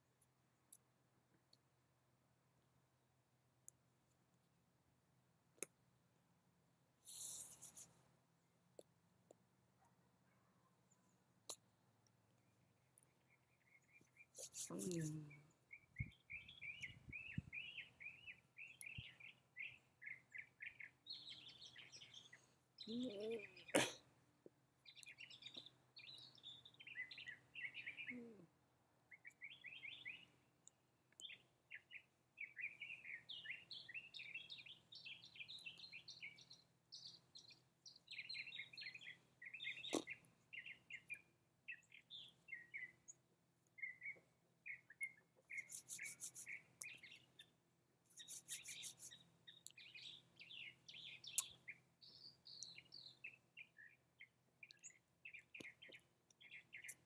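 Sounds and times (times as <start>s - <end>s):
songbirds chirping: 0.0s - 57.0s.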